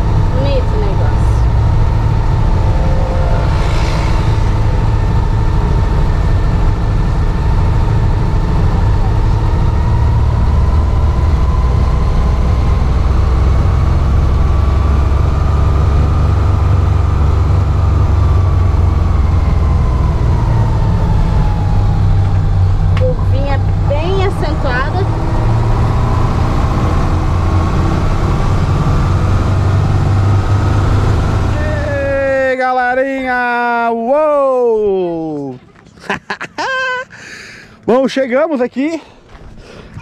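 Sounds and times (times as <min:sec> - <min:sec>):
faint whine: 0:00.0 - 0:28.5
car engine and road noise: 0:00.0 - 0:40.0.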